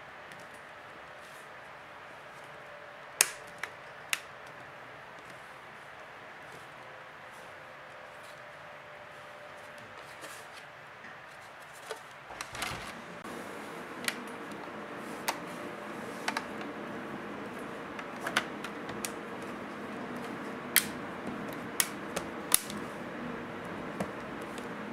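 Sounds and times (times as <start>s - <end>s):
plastic clips snapping: 3.2s - 4.6s, 20.7s - 22.8s.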